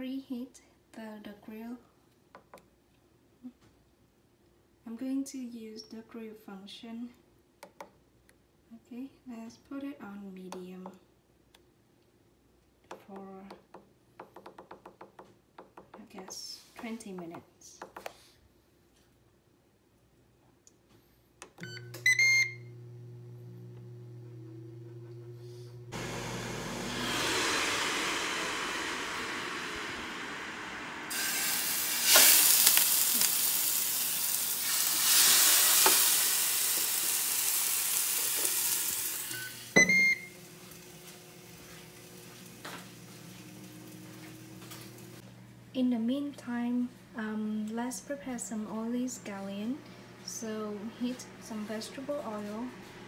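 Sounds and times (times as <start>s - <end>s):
grill fan humming: 21.8s - 45.8s
fish sizzling on hot grill: 31.1s - 39.8s.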